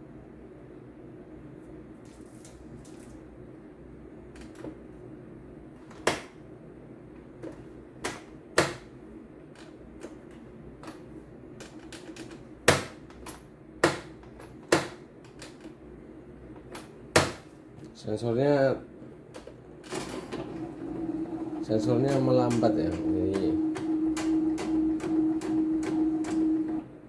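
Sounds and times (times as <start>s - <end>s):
machine low hum: 0.0s - 27.0s
embroidery machine clacking: 21.4s - 26.5s.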